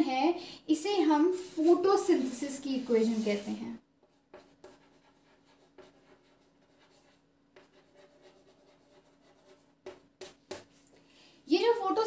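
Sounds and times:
pen scratching handwriting: 4.3 - 10.8.

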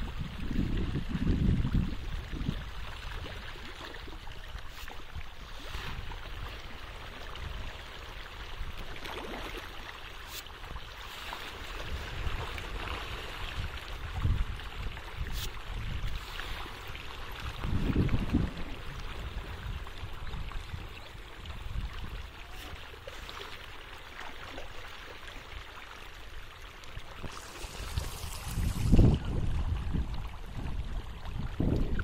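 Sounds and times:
fish splashing and churning water: 0.0 - 32.0
short sharp splashes: 27.2 - 29.2.

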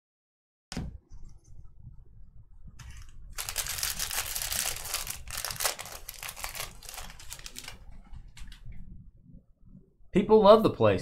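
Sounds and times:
plastic wrapper crinkling: 2.8 - 8.6.

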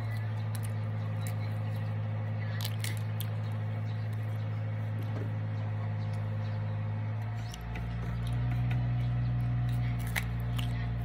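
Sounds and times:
low hum: 0.0 - 11.0
crisp clicks of mango peeling: 7.2 - 11.0.

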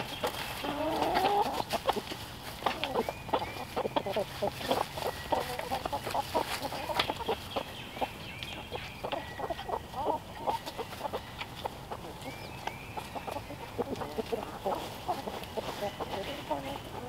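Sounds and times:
hens clucking: 0.0 - 17.0
rustles in dry leaves: 0.0 - 17.0.

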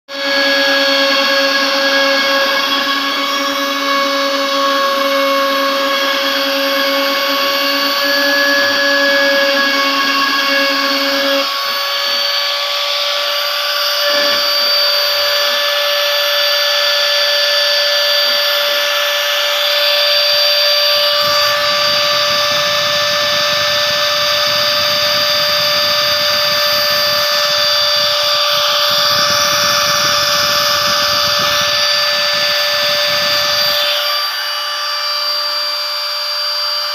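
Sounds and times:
router spindle high whine: 0.1 - 36.9
low hum: 18.8 - 35.5.

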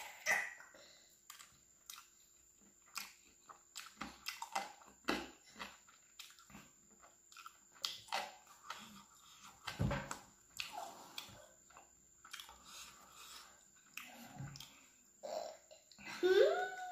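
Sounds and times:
person chewing with mouth clicks: 1.2 - 9.7, 10.5 - 14.9.

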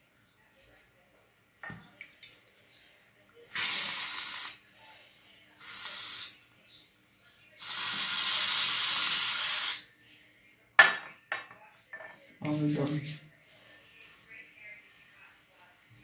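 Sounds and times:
aerosol spray can hissing: 3.4 - 4.6, 5.6 - 6.4, 7.6 - 9.8.

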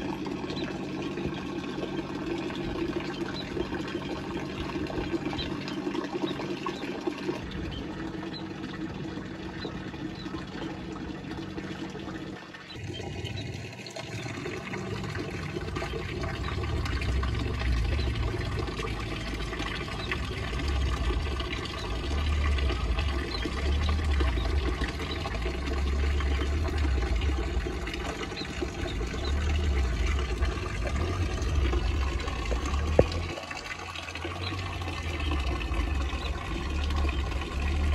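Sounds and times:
steady low hum: 0.0 - 37.9
water pouring into pool: 0.0 - 37.9
low rumble: 12.8 - 37.9.

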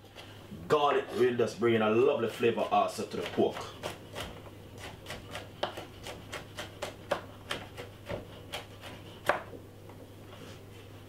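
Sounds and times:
knife chopping on wooden board: 2.6 - 9.6.

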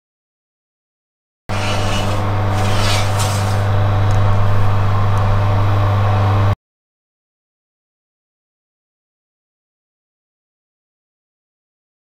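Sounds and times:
brief scraping noises: 1.5 - 3.8
oven electric hum: 1.5 - 6.6.

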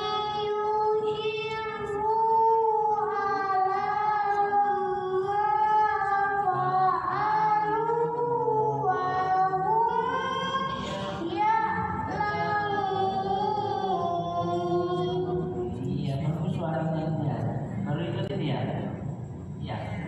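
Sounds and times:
person chanting recitation: 0.0 - 19.0
breaths: 10.8 - 11.2.

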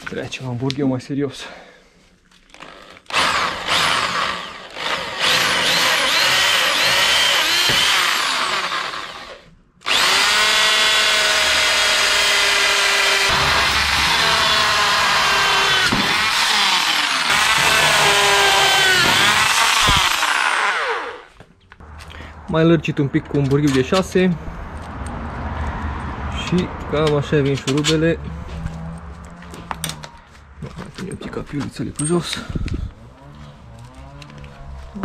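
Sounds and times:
electric drill boring steel: 2.5 - 21.3.

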